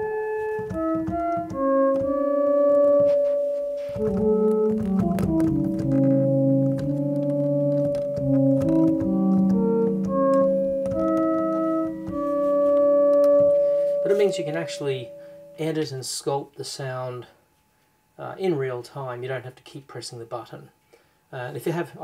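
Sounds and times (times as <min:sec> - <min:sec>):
synthesizer notes with reverb: 0:00.0 - 0:15.7.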